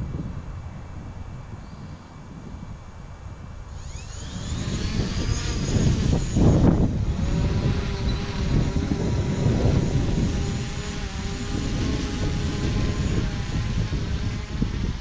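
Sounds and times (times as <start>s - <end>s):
drone propellers humming: 3.5s - 15.0s
gusty low rushing noise: 3.9s - 15.0s.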